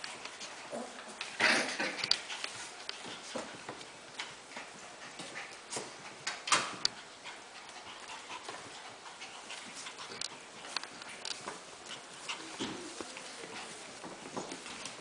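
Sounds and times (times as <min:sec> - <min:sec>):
puppy claws on hardwood floor: 0:07.7 - 0:15.0.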